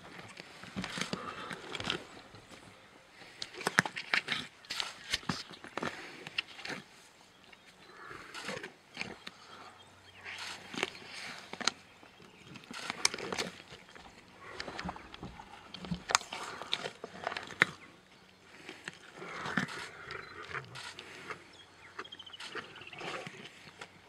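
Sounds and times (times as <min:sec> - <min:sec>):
lions biting and crunching: 0:00.0 - 0:24.0
wet chewing: 0:10.3 - 0:24.0.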